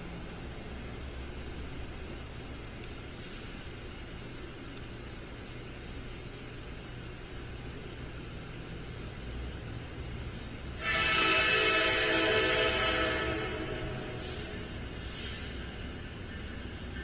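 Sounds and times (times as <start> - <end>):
steady hiss: 0.0 - 17.0
distant freight train rumble: 9.6 - 17.0.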